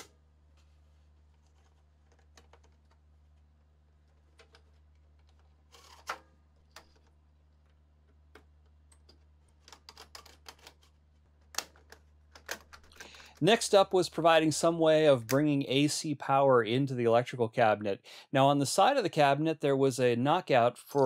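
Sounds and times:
cable scraping in plastic duct: 4.5 - 6.1.

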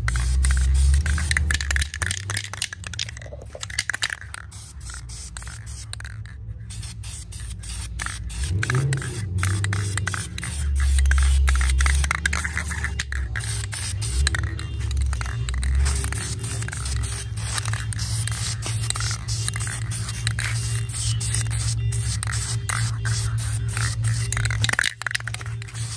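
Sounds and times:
spray paint hissing: 0.0 - 25.9.

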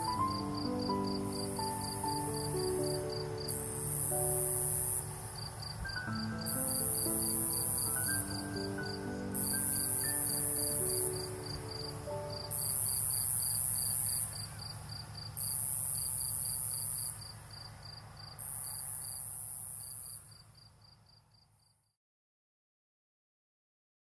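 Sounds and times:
music: 0.0 - 12.9
high-pitched insect buzz: 0.0 - 14.8
crickets chirping: 0.0 - 21.9.

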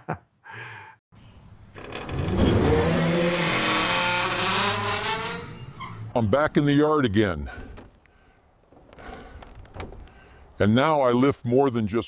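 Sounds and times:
tyres squealing: 1.8 - 6.2
car engine revving hard: 2.1 - 5.7.

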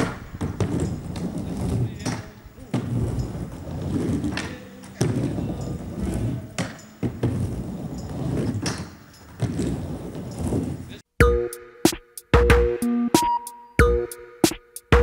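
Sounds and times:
skateboard clacking on coping: 0.0 - 10.9
skateboard wheels rumbling: 0.0 - 11.0.

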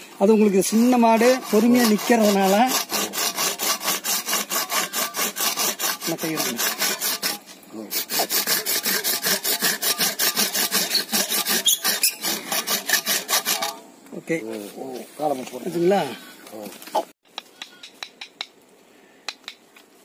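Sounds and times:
hand rasp scraping horn: 0.6 - 13.8.

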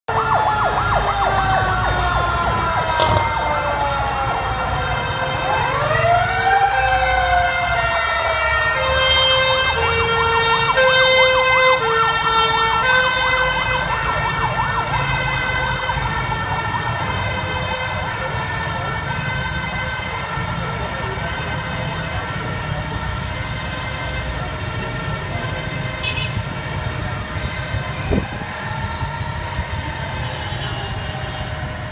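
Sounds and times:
siren yelping: 0.1 - 23.4
siren wailing: 0.1 - 31.9
two-tone siren: 0.1 - 31.9.

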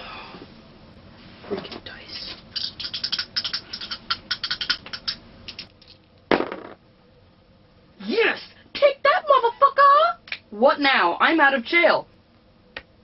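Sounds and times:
dice rattling in a hand: 2.6 - 6.0
dice clattering onto a board: 3.1 - 6.8.

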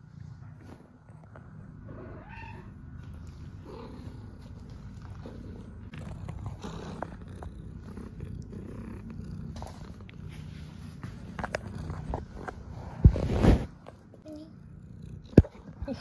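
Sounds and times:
cat purring: 0.0 - 16.0
soft rustles and ticks: 3.0 - 7.5, 8.4 - 13.1.

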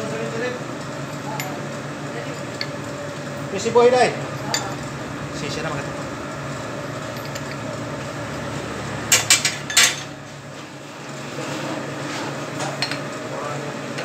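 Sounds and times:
machinery hum: 0.0 - 12.6
metal tools clanking: 1.1 - 10.2.

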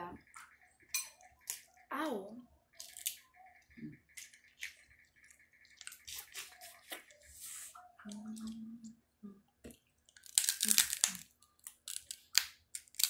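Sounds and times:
crab legs cracking and squishing: 1.2 - 1.8, 2.7 - 7.2, 9.6 - 13.0.

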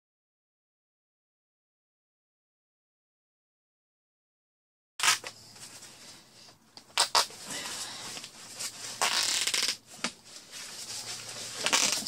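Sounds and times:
fabric bags rustling: 7.2 - 12.0.

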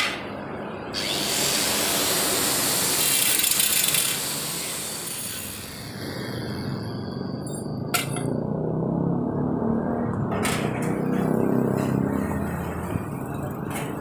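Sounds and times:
angle grinder cutting steel: 1.0 - 6.9.

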